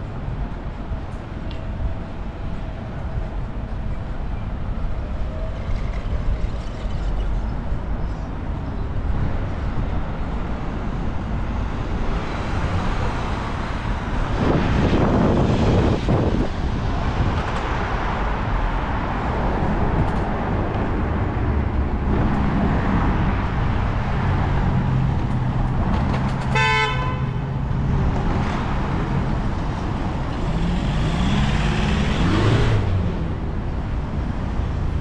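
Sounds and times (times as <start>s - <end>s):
street traffic: 0.0s - 35.0s
car horn toot: 26.5s - 27.4s
vehicle engine pulling away: 30.4s - 33.3s.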